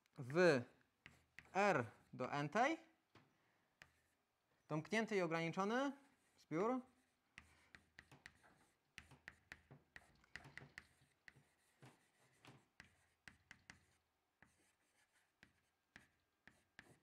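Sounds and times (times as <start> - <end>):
chalk writing on blackboard: 1.0 - 2.3, 3.8 - 4.3, 6.0 - 17.0.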